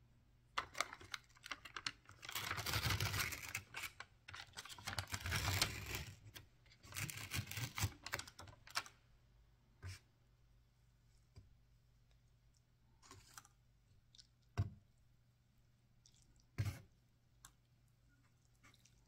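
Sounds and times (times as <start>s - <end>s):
foil lid crinkling: 0.6s - 6.0s.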